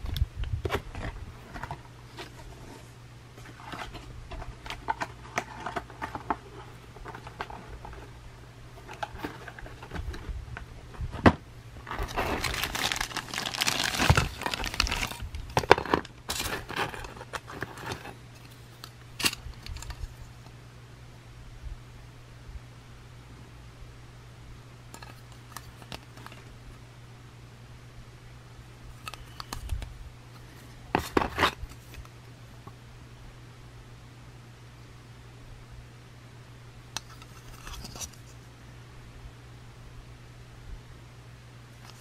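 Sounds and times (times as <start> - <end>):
plastic bag crinkling: 11.8 - 18.2.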